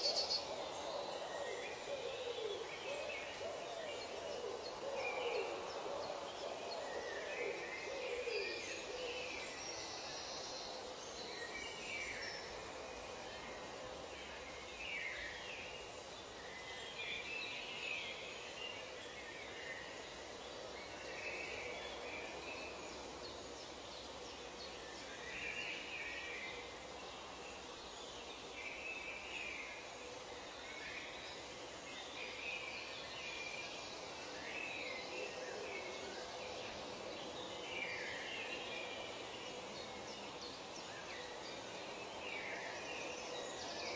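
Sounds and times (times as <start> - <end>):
steady background hiss: 0.0 - 43.9.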